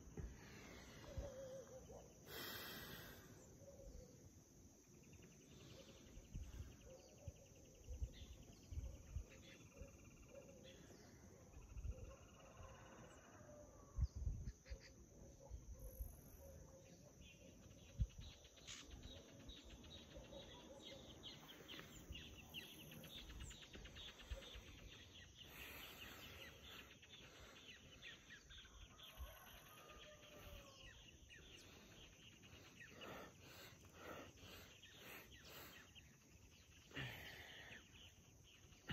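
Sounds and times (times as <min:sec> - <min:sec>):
insects chirping: 0:00.0 - 0:12.1, 0:14.0 - 0:38.9
birds chirping: 0:15.9 - 0:38.9.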